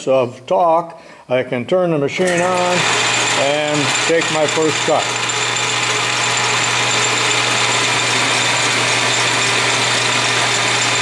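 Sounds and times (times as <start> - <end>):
lathe humming and hissing: 2.3 - 11.0
lathe tool cutting metal: 2.3 - 11.0.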